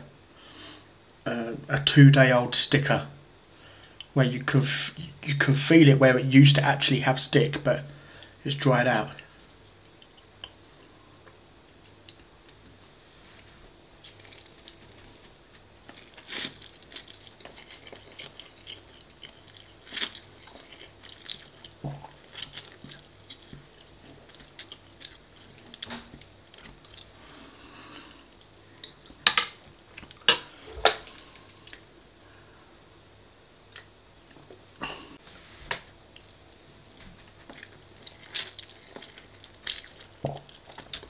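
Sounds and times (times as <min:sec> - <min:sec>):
chewing and wet mouth sounds: 0:14.0 - 0:27.2, 0:31.4 - 0:31.8, 0:36.1 - 0:41.0.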